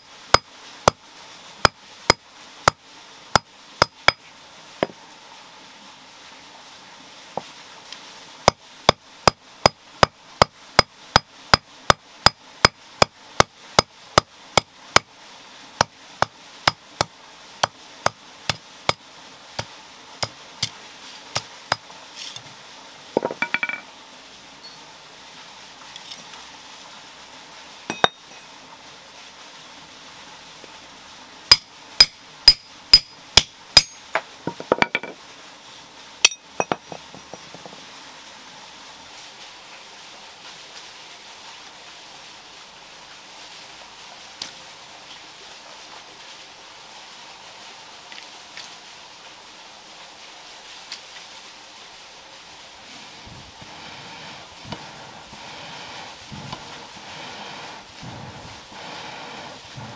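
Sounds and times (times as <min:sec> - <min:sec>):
hammer blows on iron: 0:31.5 - 0:34.2.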